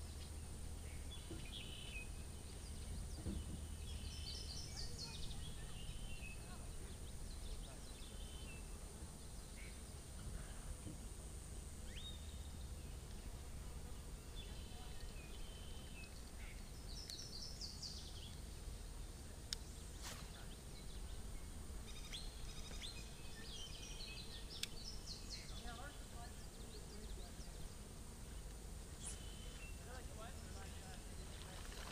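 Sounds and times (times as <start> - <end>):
small birds chirping: 0.0 - 10.9, 11.5 - 31.9
outdoor background noise: 0.0 - 31.9.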